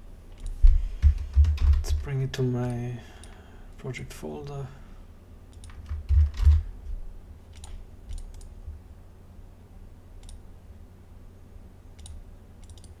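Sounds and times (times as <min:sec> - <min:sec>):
computer mouse clicking: 0:00.3 - 0:03.4, 0:05.5 - 0:06.6, 0:07.5 - 0:08.5, 0:10.2 - 0:10.4, 0:12.0 - 0:13.0.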